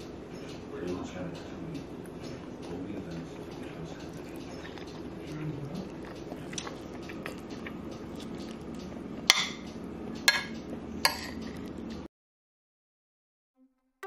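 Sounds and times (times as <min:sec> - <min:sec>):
metal utensil clinking on plate: 0:10.3 - 0:11.5.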